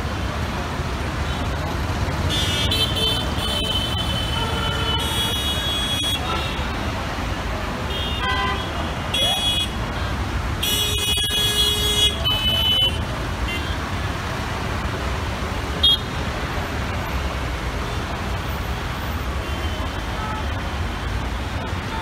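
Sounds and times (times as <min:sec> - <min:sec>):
traffic rumble: 0:00.0 - 0:22.0
vehicle horns honking: 0:02.3 - 0:06.7, 0:07.9 - 0:09.8, 0:10.6 - 0:13.8.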